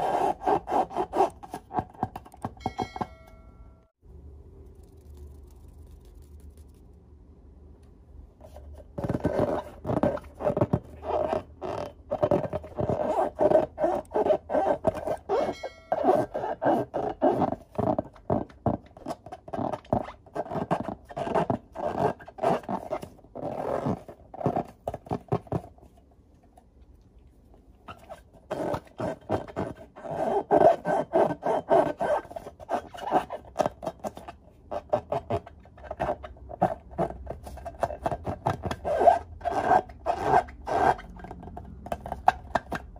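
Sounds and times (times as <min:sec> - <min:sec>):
rubber balloons squeaking: 0:00.0 - 0:02.2, 0:09.0 - 0:25.2, 0:27.9 - 0:41.2.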